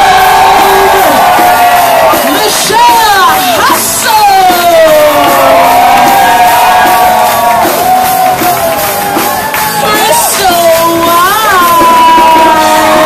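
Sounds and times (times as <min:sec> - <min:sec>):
audience clapping: 0:00.0 - 0:03.7, 0:04.4 - 0:13.0
audience whooping: 0:00.0 - 0:13.0.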